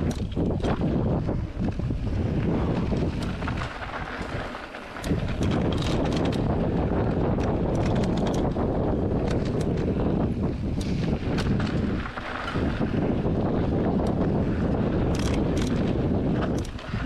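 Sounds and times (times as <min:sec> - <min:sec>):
tyres on loose gravel: 0:00.0 - 0:17.0
wind buffeting microphone: 0:00.0 - 0:17.0
clicks and rattles of stones: 0:02.7 - 0:06.5, 0:07.4 - 0:08.6.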